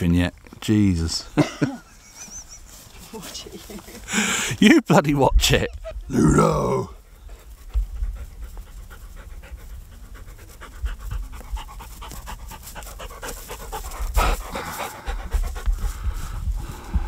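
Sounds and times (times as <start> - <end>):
dog panting: 7.2 - 17.0.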